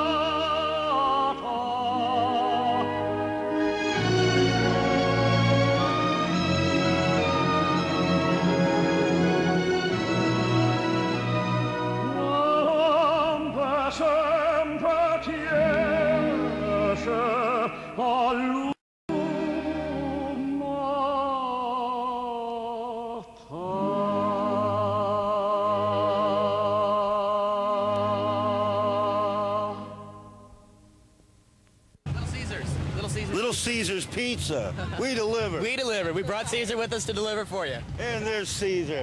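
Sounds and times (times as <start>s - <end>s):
musical accompaniment: 0.0s - 21.3s
operatic solo singing: 0.0s - 30.8s.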